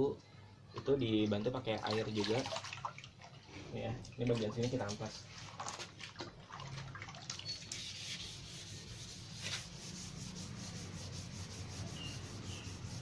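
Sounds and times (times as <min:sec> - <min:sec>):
sandpaper scratching wet surface: 0:07.5 - 0:13.0.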